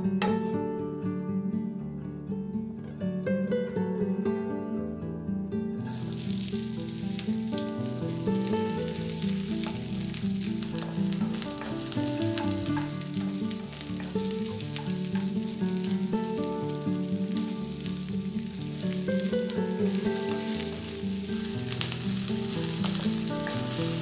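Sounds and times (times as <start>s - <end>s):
plucked-string background music: 0.0s - 24.0s
onion sizzling in hot oil: 5.8s - 24.0s
wooden spatula scraping wok: 5.8s - 24.0s.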